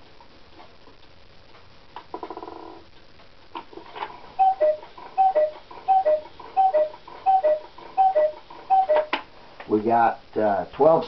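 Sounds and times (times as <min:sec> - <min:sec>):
clock ticking: 0:04.4 - 0:09.2.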